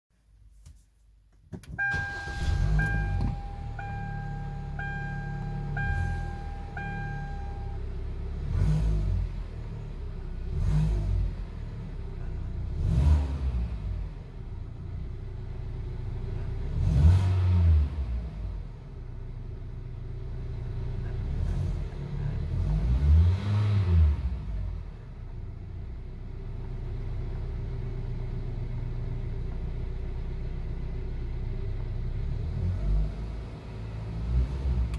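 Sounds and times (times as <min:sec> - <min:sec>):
car engine starting and revving: 0:01.6 - 0:34.9
dashboard warning chime: 0:01.8 - 0:07.9.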